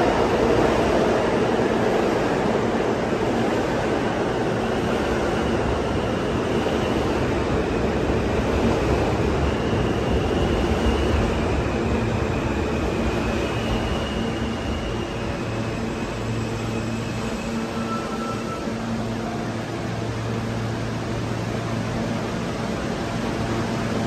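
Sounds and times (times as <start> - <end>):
subway train wheels rumbling: 0.0 - 24.0
faint high whines: 9.0 - 21.8.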